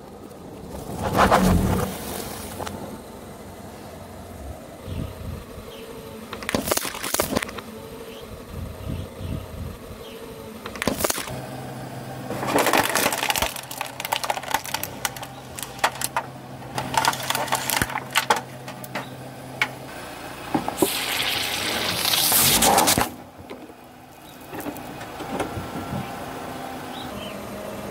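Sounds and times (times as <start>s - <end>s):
plastic crackling under a tyre: 6.3s - 7.7s, 10.6s - 11.4s, 12.2s - 19.8s, 20.6s - 25.6s.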